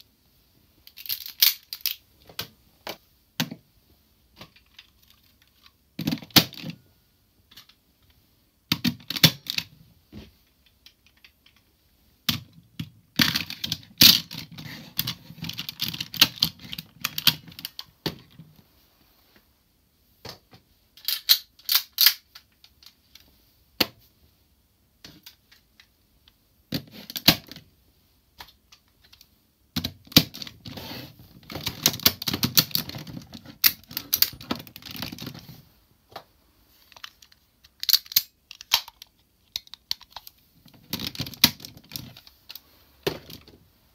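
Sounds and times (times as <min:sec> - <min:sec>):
plastic toy pieces clicking together: 0:00.8 - 0:02.0, 0:13.2 - 0:17.9, 0:21.0 - 0:23.0, 0:36.9 - 0:42.6.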